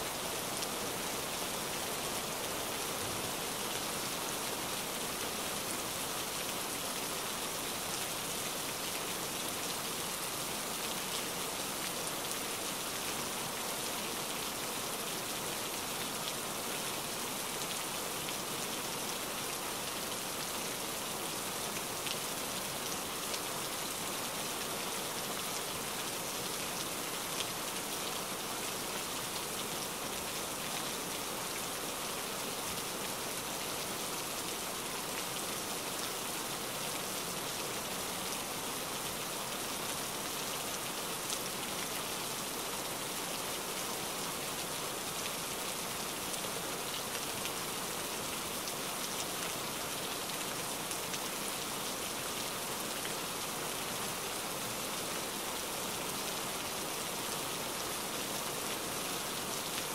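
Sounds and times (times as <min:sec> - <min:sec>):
rain-like hiss: 0:00.0 - 0:59.9.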